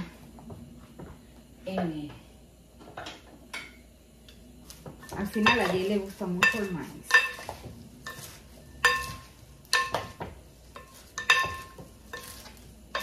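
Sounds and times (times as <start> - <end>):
utensils stirring salad: 4.6 - 13.0
utensils clinking on bowl: 5.0 - 13.0.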